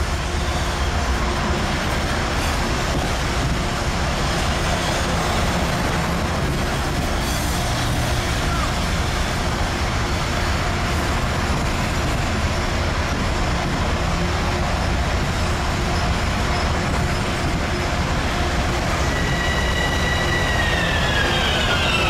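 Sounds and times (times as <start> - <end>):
train rail rumble: 0.0 - 22.0
high-pitched wheel squeal: 18.9 - 22.0.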